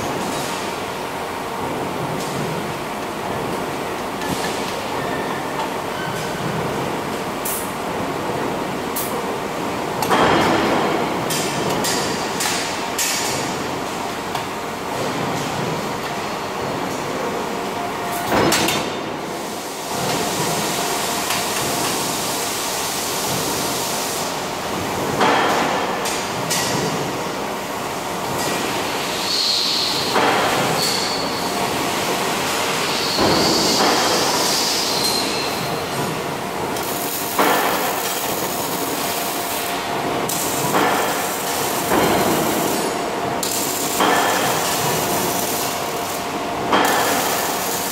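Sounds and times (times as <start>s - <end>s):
steady machine drone: 0.0s - 47.9s
arc welding torch crackling hiss: 36.8s - 47.9s.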